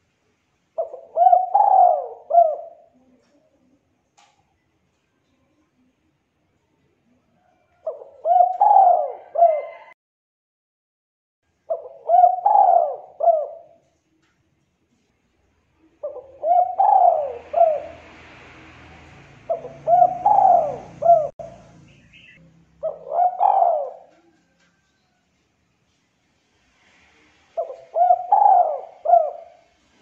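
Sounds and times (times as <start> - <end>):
dove cooing: 0.8 - 3.2, 7.4 - 9.9, 11.7 - 13.9, 15.9 - 18.3, 19.1 - 24.6, 27.5 - 30.0.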